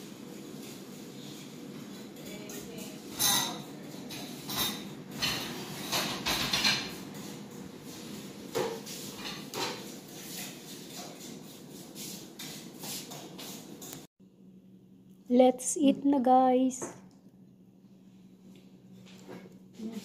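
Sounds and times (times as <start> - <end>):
dishes and pots clattering: 3.0 - 7.3, 8.5 - 11.3.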